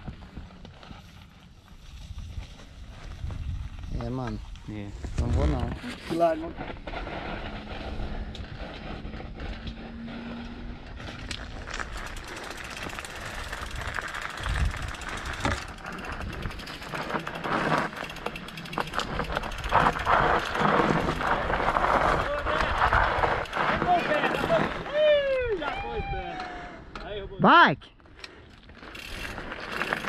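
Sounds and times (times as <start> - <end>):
bike rattling and knocking: 5.1 - 24.9, 28.7 - 30.0
tyres crunching over stones: 11.0 - 16.0.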